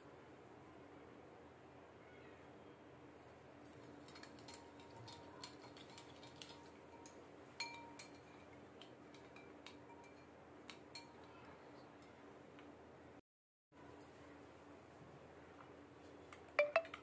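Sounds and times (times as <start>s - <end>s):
spoon clinking against glass bowl: 4.2s - 8.6s, 9.2s - 10.3s, 16.6s - 17.0s.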